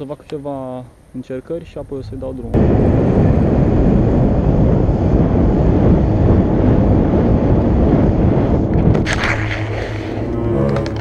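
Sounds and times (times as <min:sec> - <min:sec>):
wind buffeting microphone: 0:01.7 - 0:11.0
skateboard wheels rolling on asphalt: 0:03.2 - 0:11.0.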